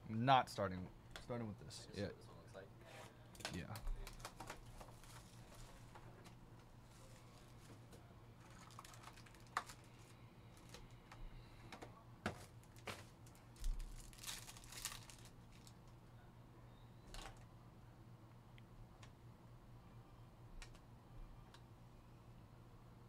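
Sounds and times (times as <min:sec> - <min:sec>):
foil wrapper tearing: 0:08.4 - 0:10.8, 0:13.6 - 0:15.8.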